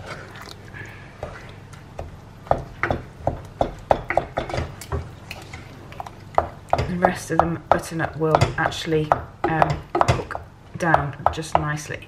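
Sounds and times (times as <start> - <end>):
wooden spoon stirring thick mixture: 0.0 - 11.8
spoon knocking against pot: 2.0 - 5.1, 6.4 - 11.8.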